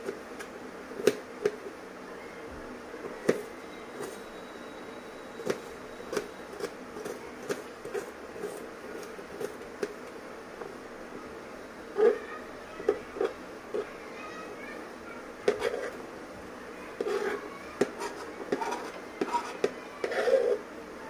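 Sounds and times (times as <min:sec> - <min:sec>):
knife chopping on plastic board: 0:05.4 - 0:10.0.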